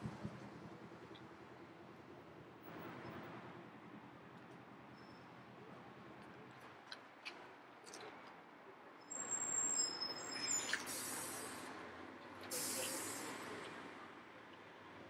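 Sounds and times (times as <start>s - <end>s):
thin high squeal: 9.1s - 11.6s
hissing bursts: 10.6s - 11.7s, 12.5s - 13.6s.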